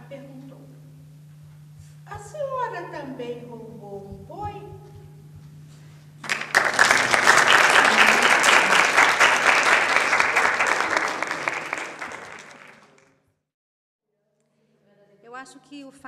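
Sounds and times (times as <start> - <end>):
audience applauding: 6.2 - 13.2.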